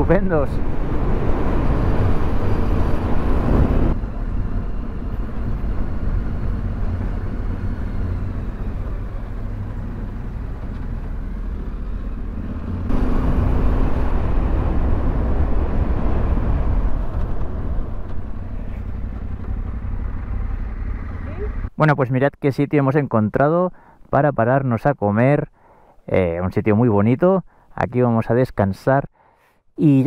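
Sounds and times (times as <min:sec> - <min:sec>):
rushing wind noise: 0:00.0 - 0:09.1, 0:12.4 - 0:20.1
motorcycle engine running: 0:18.1 - 0:21.7.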